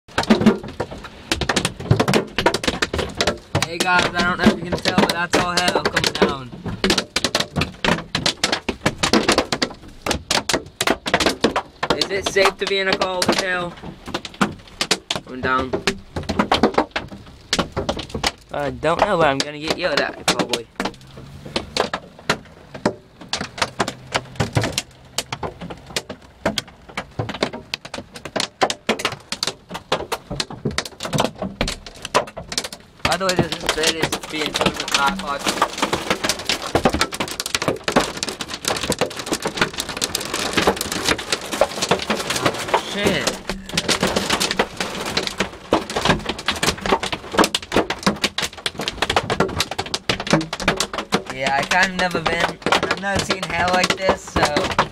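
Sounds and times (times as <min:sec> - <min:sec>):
hailstones clattering: 0:00.1 - 0:54.9.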